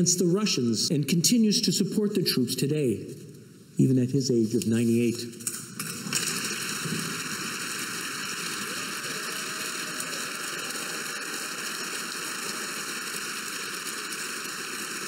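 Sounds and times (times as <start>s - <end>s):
crowd applauding: 6.1s - 15.0s.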